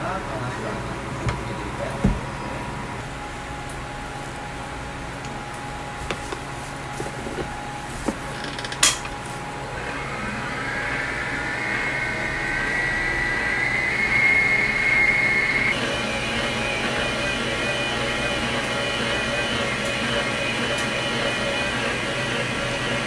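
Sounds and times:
stand mixer motor whine: 0:09.5 - 0:23.0
whisk beating batter in metal bowl: 0:15.8 - 0:23.0.

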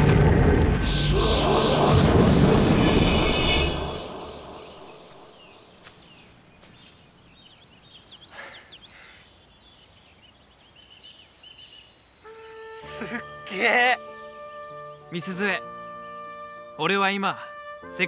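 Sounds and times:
birds chirping: 0:00.7 - 0:18.0
faint outdoor hiss: 0:03.7 - 0:18.0.

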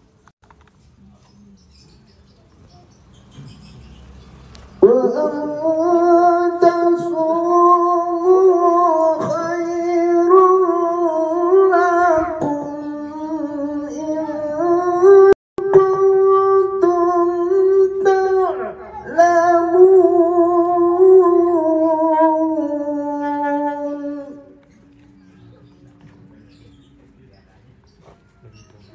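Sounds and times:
man chanting through microphone: 0:04.8 - 0:24.6.

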